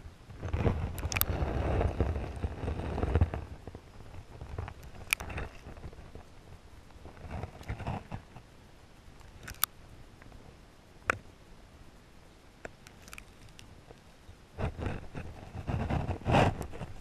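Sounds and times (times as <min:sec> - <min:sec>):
scraping rumble: 0:00.3 - 0:06.4
sharp underwater clicks: 0:00.6 - 0:01.4, 0:04.6 - 0:05.8, 0:09.2 - 0:10.3, 0:12.6 - 0:14.0.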